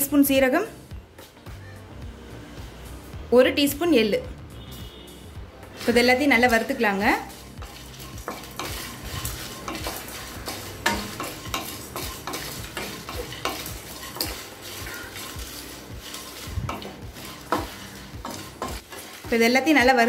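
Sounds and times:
spatula scraping in pan: 5.7s - 20.0s.

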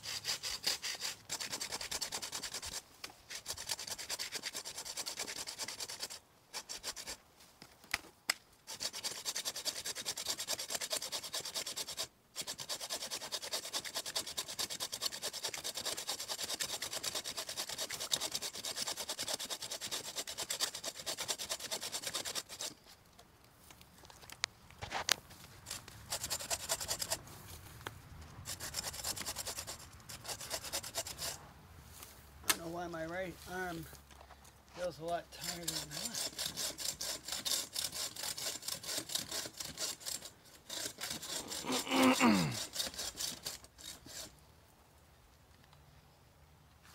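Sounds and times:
pruning saw cutting branch: 0.0s - 7.2s, 8.7s - 22.8s, 25.6s - 27.2s, 28.5s - 31.4s, 35.4s - 44.4s.

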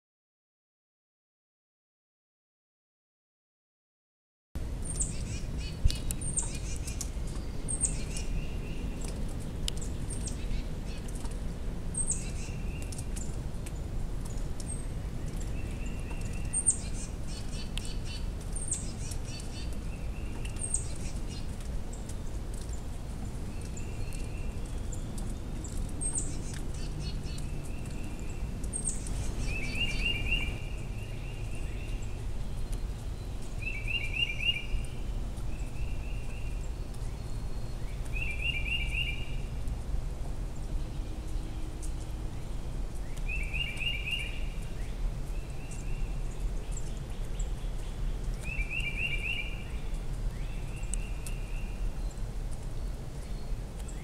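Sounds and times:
steady low rumble: 4.6s - 33.6s
songbirds chirping: 4.6s - 54.0s
bird trills: 26.0s - 32.0s.

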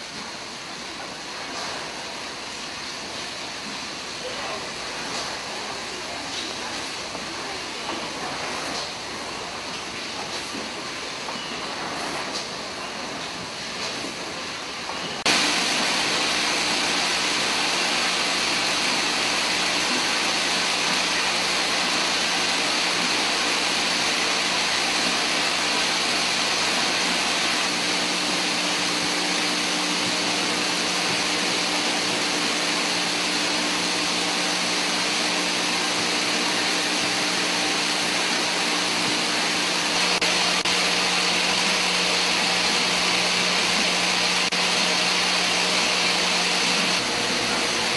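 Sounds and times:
machinery humming: 0.0s - 47.9s.

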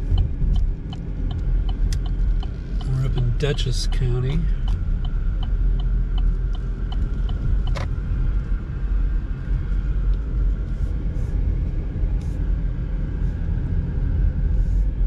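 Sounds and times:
regular short ticks: 0.0s - 7.9s
car engine and road rumble: 0.0s - 15.0s.

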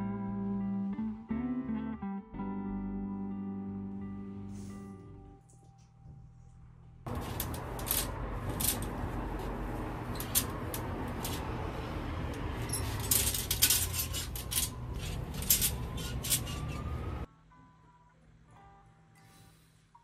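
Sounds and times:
metal drying rack clinking: 7.1s - 11.7s, 12.3s - 17.1s.

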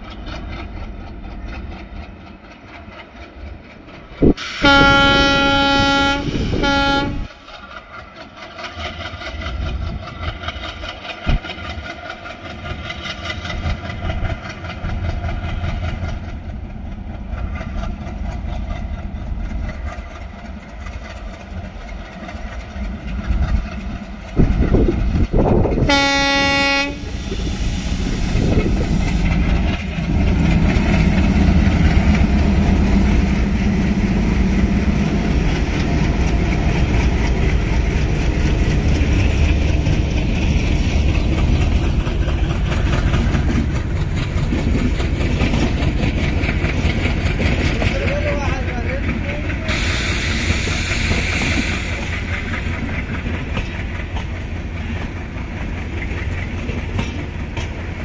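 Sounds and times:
diesel locomotives chugging: 0.0s - 58.0s
locomotive horn blast: 4.4s - 7.4s, 25.8s - 27.1s.

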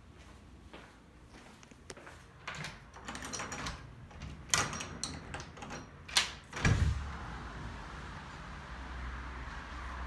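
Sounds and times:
deadbolt and door handle clicks: 2.5s - 6.7s.

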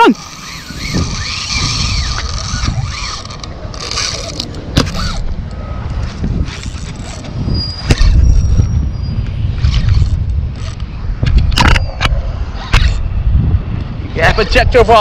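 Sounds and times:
fishing reel cranking: 0.0s - 5.2s, 6.4s - 8.3s, 9.6s - 10.8s
reel clicks: 0.0s - 8.3s, 9.6s - 12.1s.

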